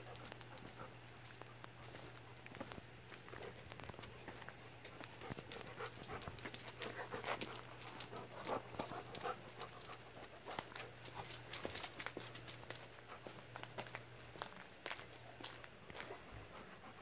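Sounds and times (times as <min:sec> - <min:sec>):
dog panting: 0:00.0 - 0:03.7, 0:04.8 - 0:13.7, 0:15.9 - 0:17.0.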